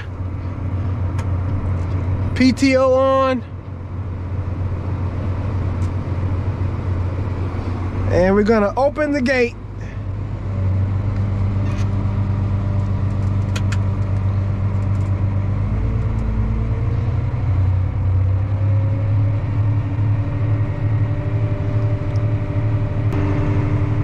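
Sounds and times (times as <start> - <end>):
tractor engine running under load: 19.4 - 24.0.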